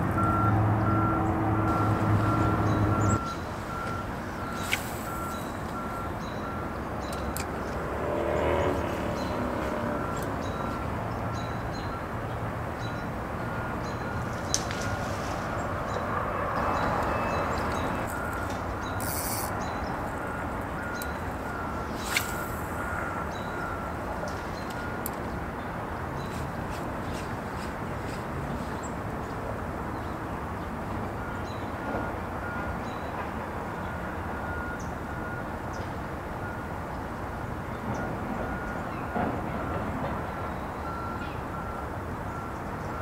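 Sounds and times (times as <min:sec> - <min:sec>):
reversing alarm beeps: 0:00.2 - 0:07.4, 0:09.5 - 0:12.1, 0:12.8 - 0:14.3, 0:17.1 - 0:25.1, 0:31.2 - 0:33.2, 0:33.9 - 0:36.6, 0:37.9 - 0:43.0.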